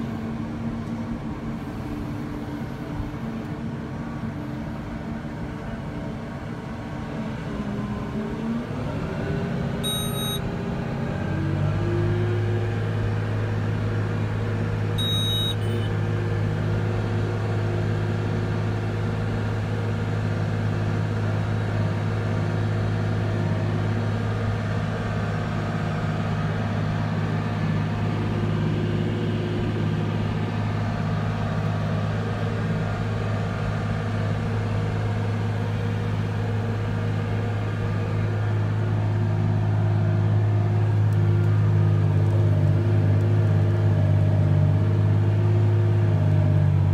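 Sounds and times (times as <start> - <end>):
tractor diesel engine: 0.0 - 46.9
short electronic beeps: 9.8 - 10.4, 15.0 - 15.9.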